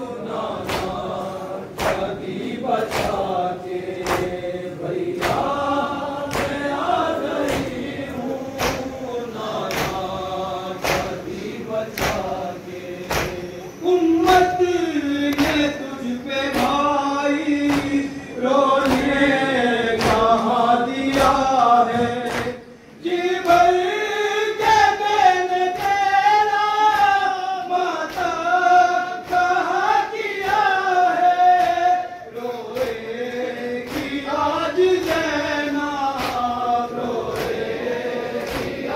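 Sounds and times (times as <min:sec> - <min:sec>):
group of voices chanting a lament: 0:00.0 - 0:38.9
sharp chest-beating slaps: 0:00.6 - 0:01.1, 0:01.8 - 0:02.2, 0:02.8 - 0:03.4, 0:04.0 - 0:04.4, 0:05.2 - 0:05.6, 0:06.2 - 0:06.7, 0:07.4 - 0:07.9, 0:08.6 - 0:09.0, 0:09.6 - 0:10.1, 0:10.8 - 0:11.2, 0:11.9 - 0:12.4, 0:13.0 - 0:13.4, 0:17.6 - 0:18.0, 0:18.8 - 0:19.2, 0:20.0 - 0:20.4, 0:33.9 - 0:34.2, 0:36.2 - 0:36.6, 0:38.4 - 0:38.9.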